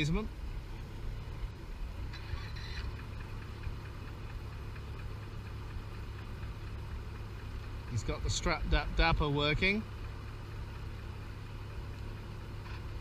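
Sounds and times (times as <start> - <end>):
ferry engine running: 0.0 - 13.0
regular ticking knock: 2.8 - 10.9.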